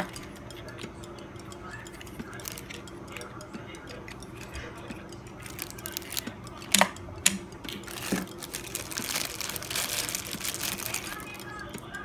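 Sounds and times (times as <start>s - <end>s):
sharp plastic clicks: 0.0s - 12.0s
plastic bag crinkling: 2.4s - 2.8s, 5.4s - 6.8s, 7.8s - 11.8s
plastic toy handling: 2.4s - 2.8s, 5.4s - 6.9s, 7.7s - 11.8s.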